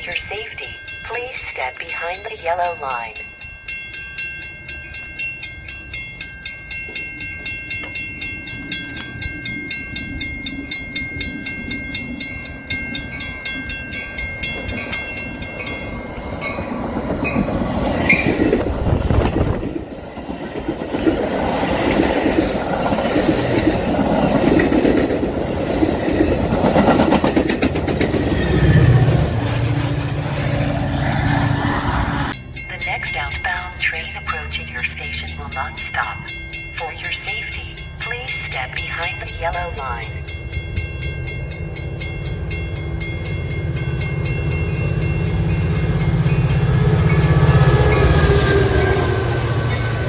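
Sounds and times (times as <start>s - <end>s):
diesel locomotive engine drone: 0.0s - 50.0s
train rumble: 0.0s - 50.0s
train wheels clickety-clack: 16.6s - 29.0s.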